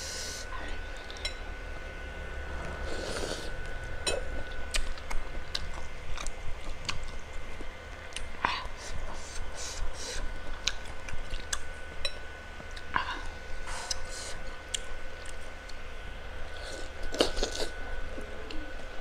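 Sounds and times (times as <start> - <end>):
chewing and biting meat: 4.4 - 8.3.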